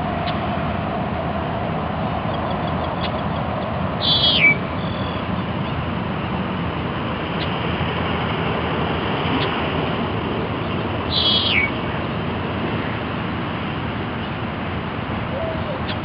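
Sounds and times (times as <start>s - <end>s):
steady background noise: 0.0s - 16.0s
bird buzzy trill: 4.0s - 5.8s, 11.0s - 11.8s.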